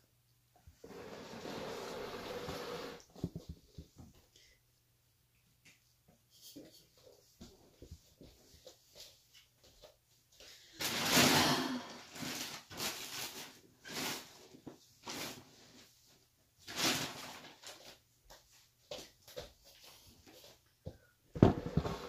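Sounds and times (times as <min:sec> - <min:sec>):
rustling and handling noises: 0:11.9 - 0:22.0.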